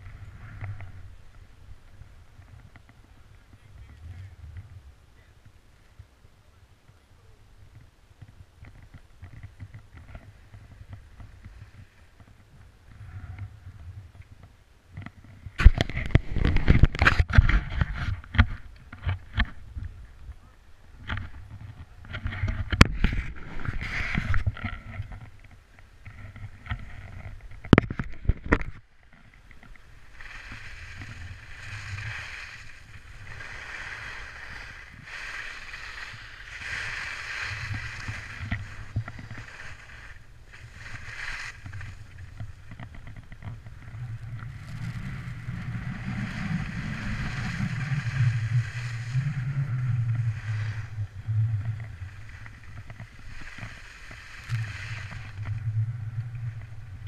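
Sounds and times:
skis scraping over snow: 8.7 - 14.1, 15.1 - 19.7, 21.3 - 27.6, 29.2 - 57.0
wind buffeting microphone: 15.4 - 18.4.

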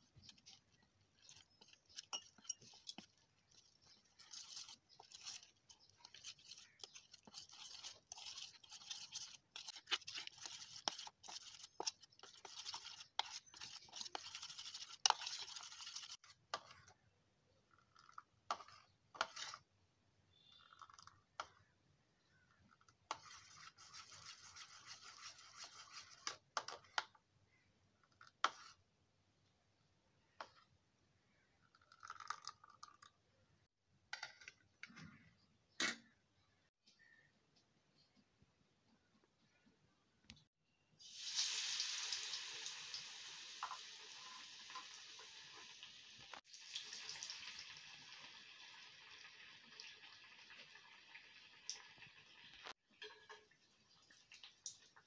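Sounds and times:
metal spoon beating batter in bowl: 0.0 - 19.7, 20.3 - 27.2, 28.0 - 28.9.

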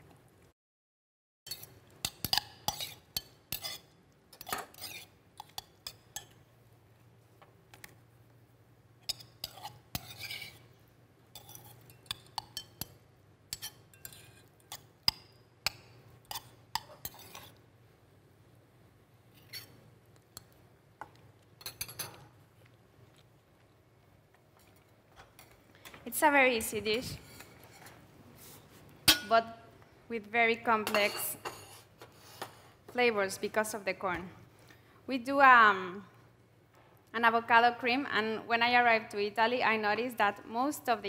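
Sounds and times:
metal spoon clinking in steel bowl: 11.3 - 17.5.

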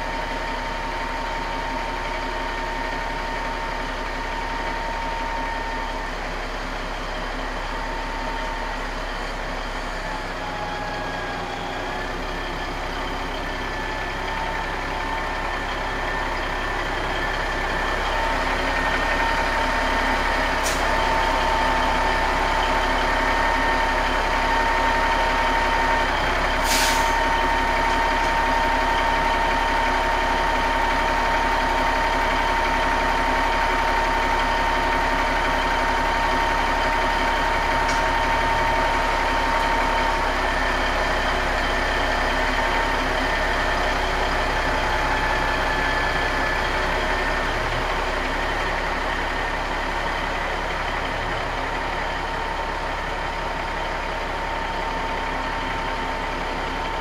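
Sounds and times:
truck diesel engine whine: 0.0 - 57.0
air brake hiss: 20.6 - 21.0, 26.6 - 27.2.

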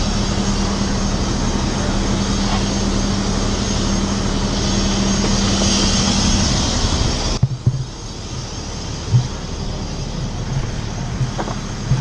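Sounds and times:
fire truck engine running: 0.0 - 12.0
outdoor noise: 0.0 - 12.0
low thumps: 5.2 - 12.0.

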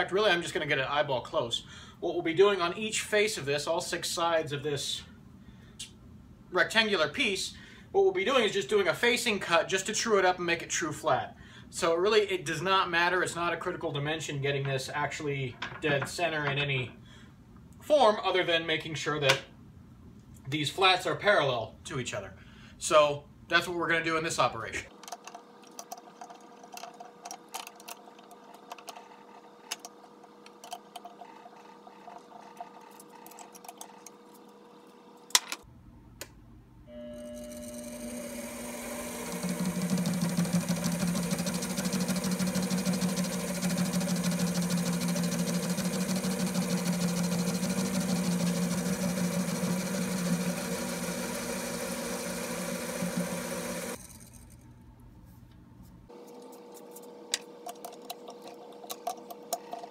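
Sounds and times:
lathe motor and gear whine: 37.1 - 54.2.

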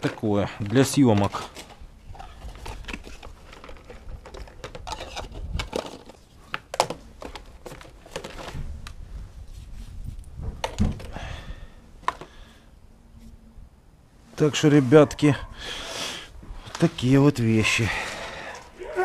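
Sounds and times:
plastic items rattling in box: 0.0 - 8.6.

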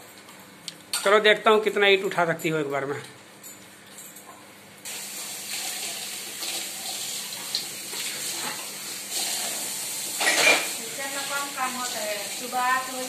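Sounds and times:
utensil clink: 10.2 - 10.7.

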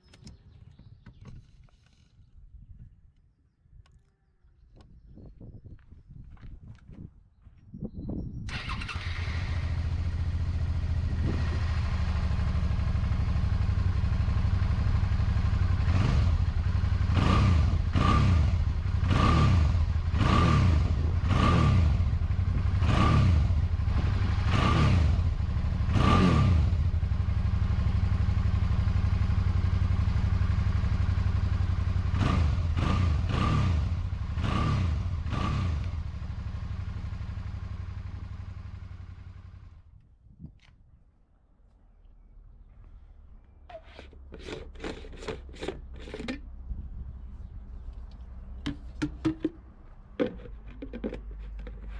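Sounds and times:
motorcycle engine revving: 8.5 - 39.8
motorcycle engine idling: 8.6 - 19.1, 26.7 - 32.8, 35.9 - 39.9.

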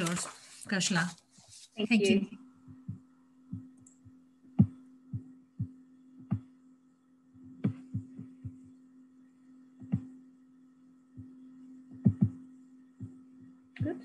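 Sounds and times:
low electrical hum: 0.0 - 14.0
computer clicks and thumps: 2.8 - 6.5, 7.5 - 8.6, 9.8 - 10.2, 11.9 - 12.4.

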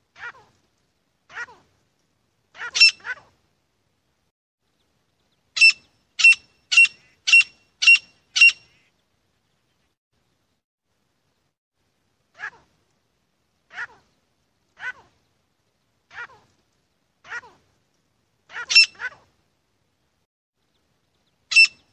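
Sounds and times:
bird calling shrill notes: 5.6 - 8.8, 21.5 - 21.9.

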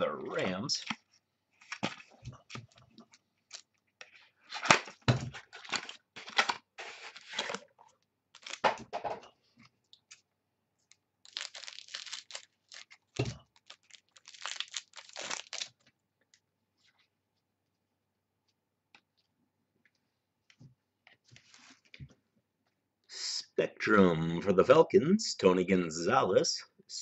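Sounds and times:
card wrappers tearing and crinkling: 4.5 - 7.6, 8.3 - 8.7, 11.2 - 15.8.

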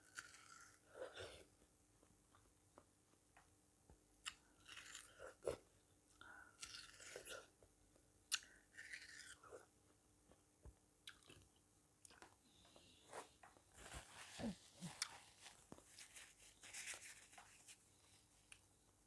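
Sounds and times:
chewing watermelon: 0.0 - 1.5, 4.2 - 5.6, 6.6 - 7.6, 8.3 - 9.7, 11.0 - 12.3, 14.4 - 15.4.

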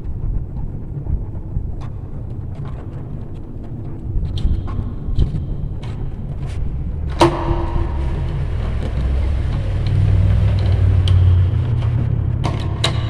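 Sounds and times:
passing vehicle engine rumble: 6.7 - 13.0.

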